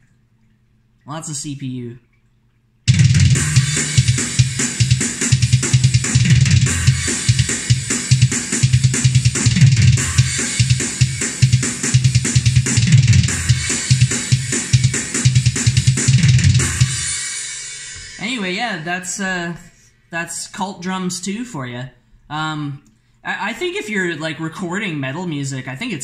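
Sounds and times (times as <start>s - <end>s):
fast kick drum strokes: 2.9s - 18.3s.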